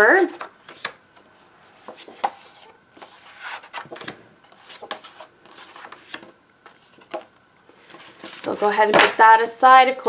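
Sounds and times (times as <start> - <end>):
paper sheets rustling: 1.8 - 9.3.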